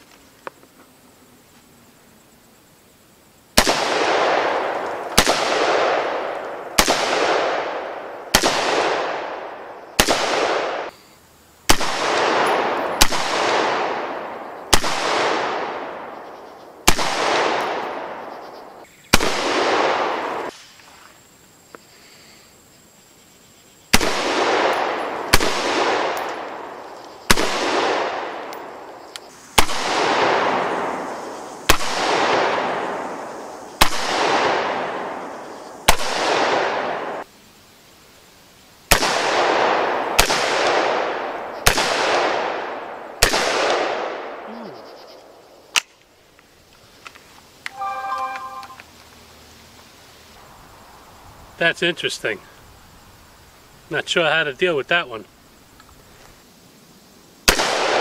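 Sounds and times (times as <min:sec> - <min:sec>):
gunshots with echoing tail: 0:03.6 - 0:10.9, 0:11.7 - 0:16.2, 0:16.8 - 0:18.3, 0:19.1 - 0:20.6, 0:23.9 - 0:28.7, 0:29.6 - 0:31.0, 0:31.7 - 0:33.0, 0:33.8 - 0:35.2, 0:35.9 - 0:37.2, 0:38.9 - 0:44.5, 0:57.5 - 0:58.0.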